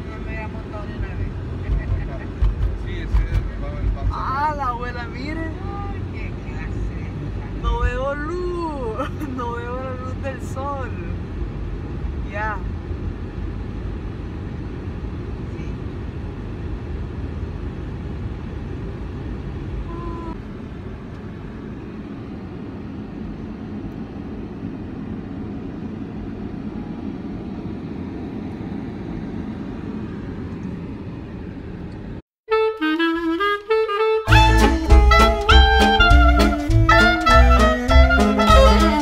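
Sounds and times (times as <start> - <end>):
car cabin road and engine noise: 0.0 - 39.0
upbeat swing music with saxophone: 32.5 - 39.0.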